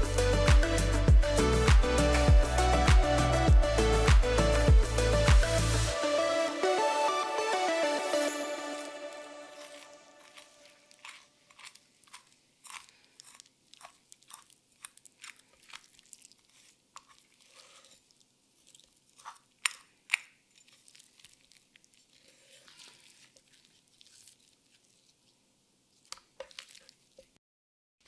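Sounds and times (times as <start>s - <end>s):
knife cutting through bone: 9.5s - 18.0s.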